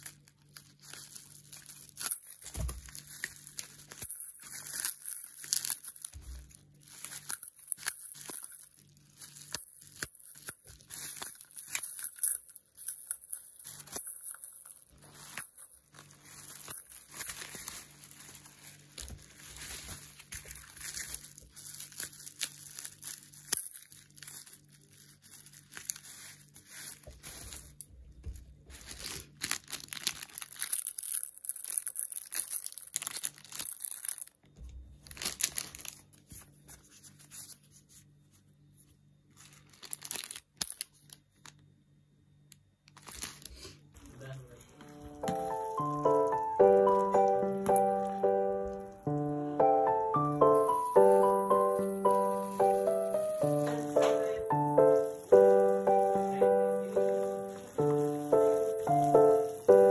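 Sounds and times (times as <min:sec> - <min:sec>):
bubble wrap crinkling: 0:00.0 - 0:41.7, 0:42.8 - 0:59.9.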